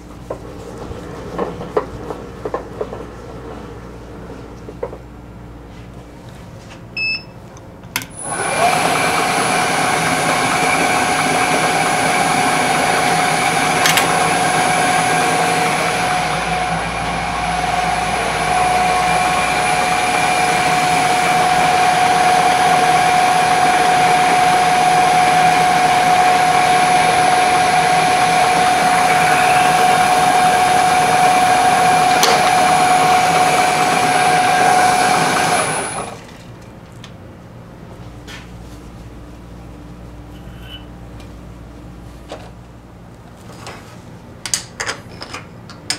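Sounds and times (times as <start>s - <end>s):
mill motor whining: 8.0s - 36.4s
drill boring into metal: 18.6s - 36.2s.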